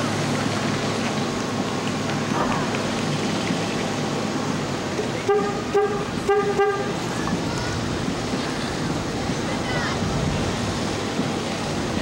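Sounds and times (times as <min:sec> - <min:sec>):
rushing background noise: 0:00.0 - 0:12.0
vehicle horn honking: 0:05.2 - 0:07.0.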